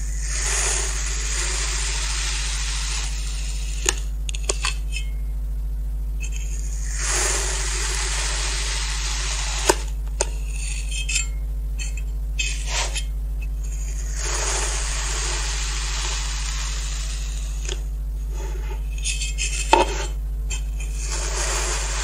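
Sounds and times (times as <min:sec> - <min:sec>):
steady low hum: 0:00.0 - 0:22.0
cutter slicing through sand: 0:06.8 - 0:09.9, 0:12.4 - 0:13.1, 0:14.0 - 0:22.0.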